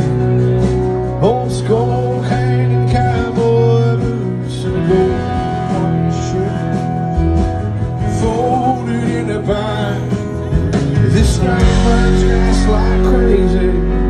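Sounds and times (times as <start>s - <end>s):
live country band playing: 0.0s - 14.0s.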